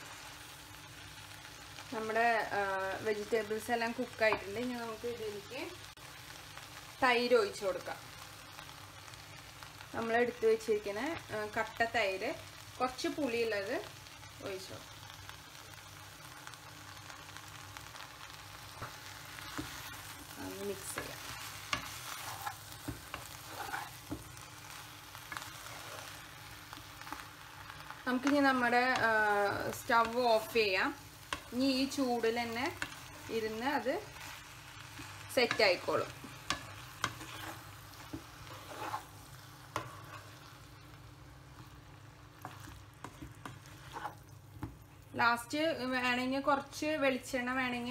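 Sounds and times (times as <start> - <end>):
vegetables sizzling in a pan: 0.0 - 47.9
wooden spatula scraping a pan: 18.8 - 24.5, 25.3 - 26.3, 32.6 - 40.6, 42.4 - 44.8.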